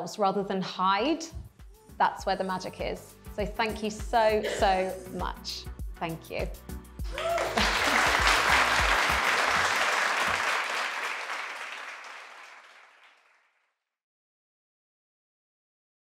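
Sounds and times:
audience applauding: 0:07.0 - 0:13.5.

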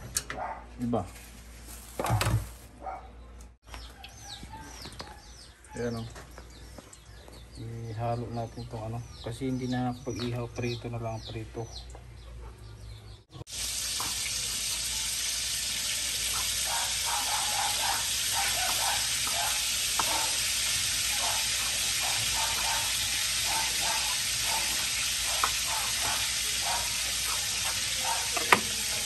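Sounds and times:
pork sizzling in hot oil: 0:13.5 - 0:29.0.

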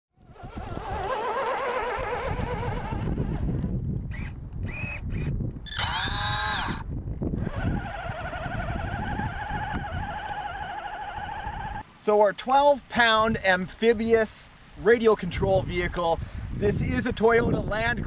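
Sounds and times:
rc truck motor whining: 0:00.2 - 0:06.8, 0:07.4 - 0:11.8.

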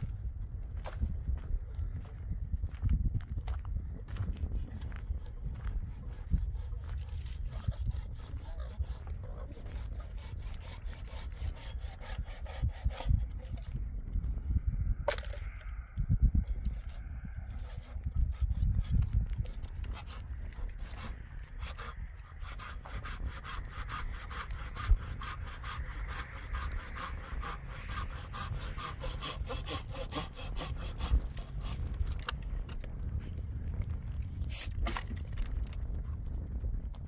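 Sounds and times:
hand saw cutting wood: 0:04.6 - 0:13.8, 0:16.6 - 0:32.4.

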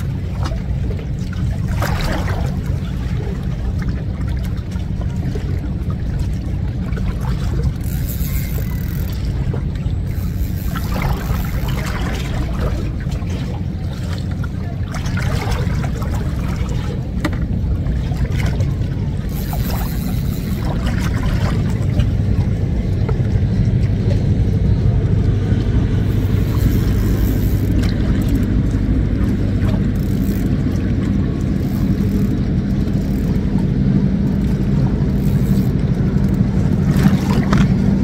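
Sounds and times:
water splashing against rocks: 0:00.0 - 0:24.0, 0:34.4 - 0:38.0
steady low rumble: 0:00.0 - 0:38.0.

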